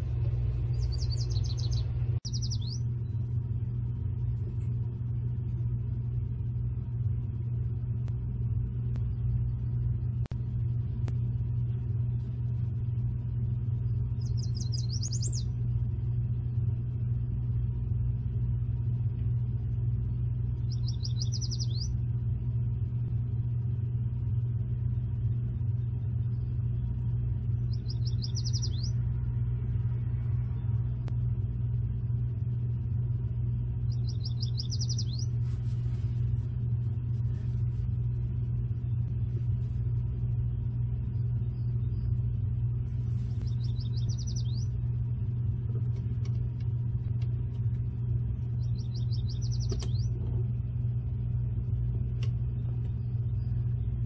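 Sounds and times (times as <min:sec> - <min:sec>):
steady low rumble: 0:00.0 - 0:54.0
songbird trilling: 0:00.6 - 0:02.9, 0:14.2 - 0:15.6, 0:20.6 - 0:22.0, 0:27.6 - 0:29.0, 0:33.9 - 0:35.4, 0:43.4 - 0:44.8, 0:48.6 - 0:50.2.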